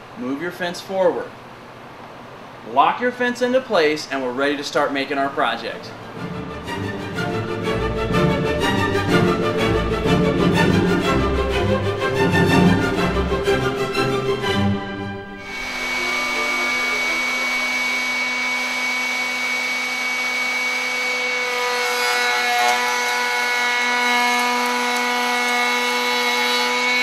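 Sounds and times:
router whining: 15.3 - 27.0
router bit cutting board: 15.4 - 27.0.

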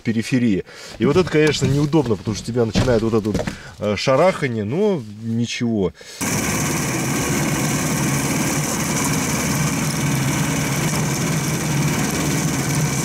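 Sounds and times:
snow pusher engine running: 6.2 - 13.0.

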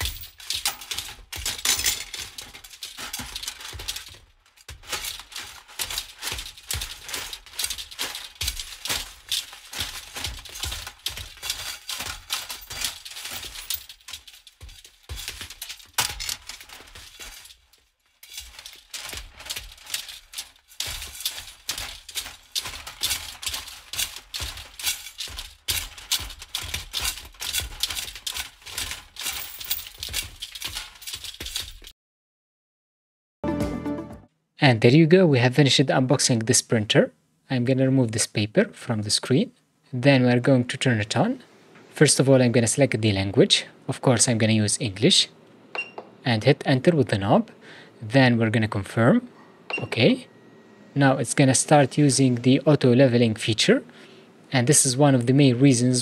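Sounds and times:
small metal and plastic parts clattering: 0.0 - 31.9.

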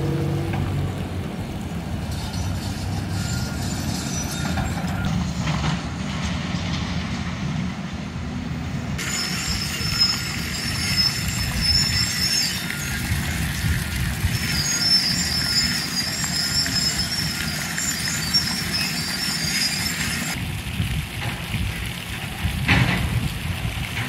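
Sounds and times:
fountain splashing into pool: 9.0 - 24.0.

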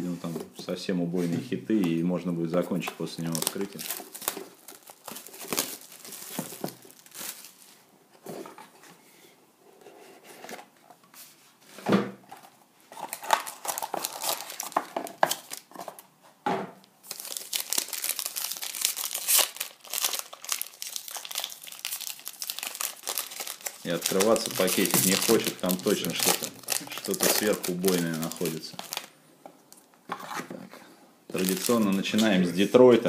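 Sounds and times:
card pack wrapper crinkling: 3.2 - 7.6, 13.0 - 16.0, 17.0 - 29.1, 31.3 - 32.4
plastic wrap crinkling and tearing: 3.2 - 7.7, 13.0 - 16.0, 17.0 - 29.9, 31.3 - 32.4.

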